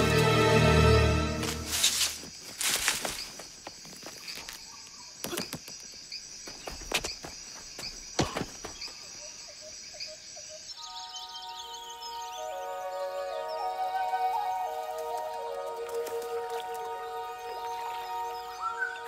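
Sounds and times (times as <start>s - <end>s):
high insect chirr: 0.0s - 19.0s
sharp footfalls: 6.5s - 8.9s
soft music with held tones: 10.8s - 19.0s.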